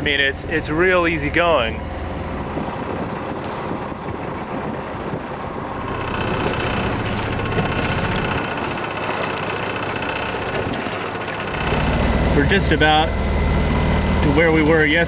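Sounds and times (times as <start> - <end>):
motor humming: 0.0 - 14.6
rushing noise: 5.6 - 9.5.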